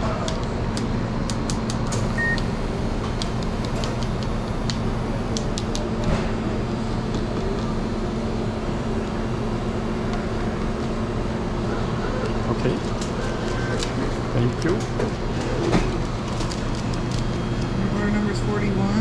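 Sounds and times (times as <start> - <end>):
hum of kitchen equipment: 0.0 - 19.0
short electronic beep: 2.2 - 2.4.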